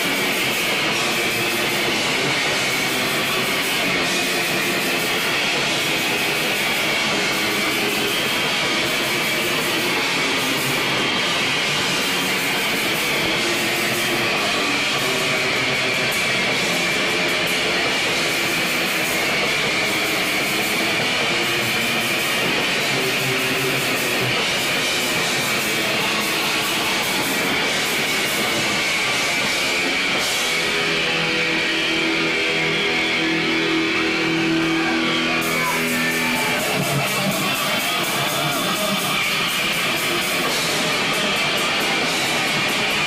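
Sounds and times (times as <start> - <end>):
distorted electric guitar: 0.0 - 43.0
drums: 0.0 - 43.0.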